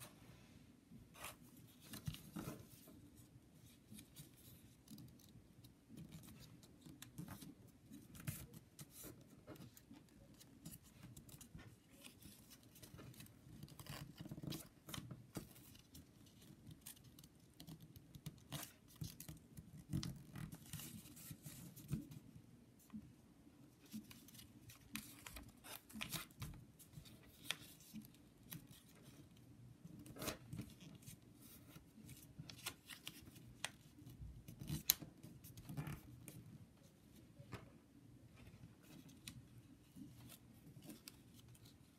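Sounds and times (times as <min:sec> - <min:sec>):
paper crinkling and rustling: 0:23.9 - 0:29.2, 0:30.0 - 0:36.4.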